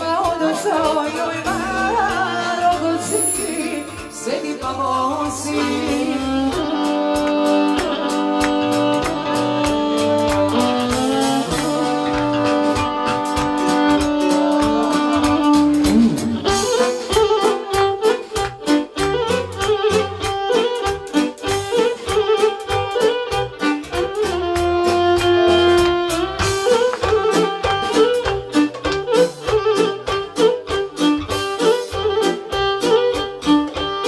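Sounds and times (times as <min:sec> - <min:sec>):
woman singing: 0:00.0 - 0:08.2, 0:10.9 - 0:12.5
drum beat: 0:00.0 - 0:34.0
electric violin folk music: 0:00.0 - 0:34.0.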